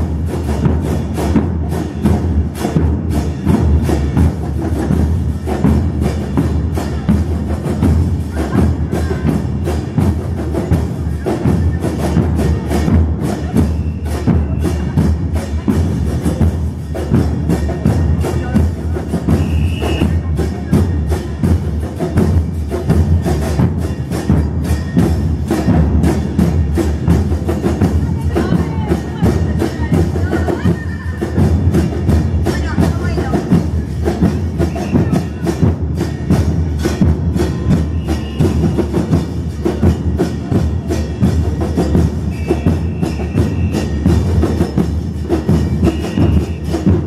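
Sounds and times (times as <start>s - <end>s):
bass drums beating: 0.0s - 47.0s.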